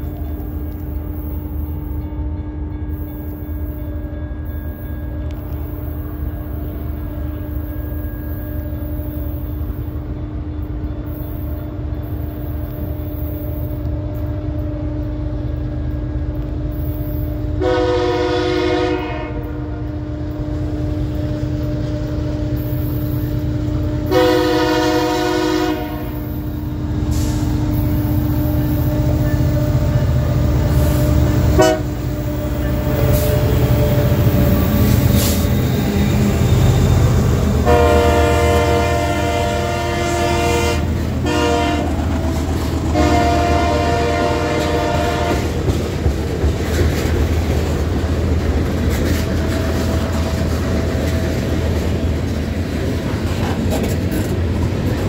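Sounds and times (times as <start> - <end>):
diesel locomotive engine rumble: 0.0 - 55.0
train horn blasts: 17.4 - 33.9, 37.6 - 45.7.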